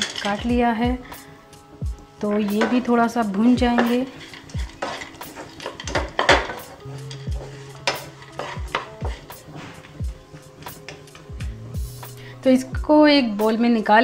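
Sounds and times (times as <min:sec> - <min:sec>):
spatula scraping a pan: 0:02.2 - 0:11.1
food frying in fat: 0:03.4 - 0:09.9.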